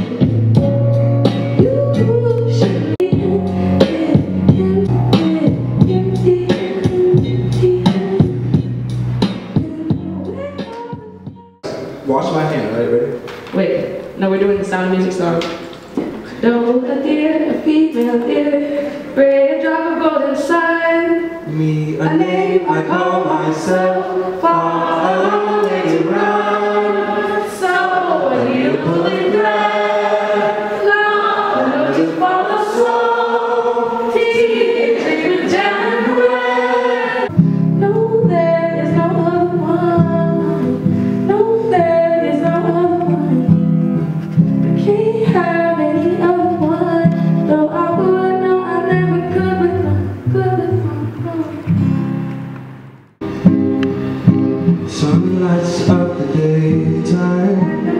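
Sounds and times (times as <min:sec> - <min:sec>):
low musical accompaniment: 0:00.0 - 0:13.1
woman singing into microphone: 0:01.3 - 0:08.7, 0:09.5 - 0:11.6, 0:16.3 - 0:23.3, 0:24.4 - 0:43.7, 0:44.7 - 0:51.8.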